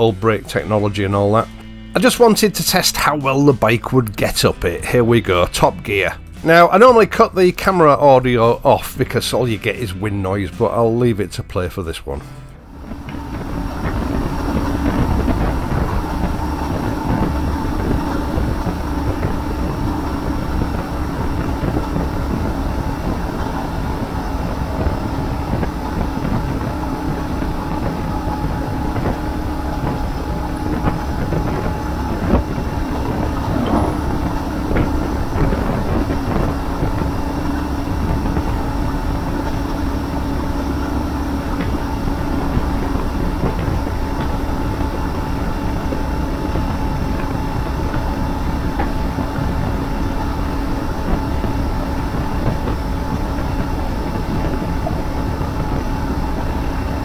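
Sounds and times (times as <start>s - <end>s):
motorcycle engine drone: 0.0s - 57.0s
wind rushing over microphone: 12.6s - 57.0s.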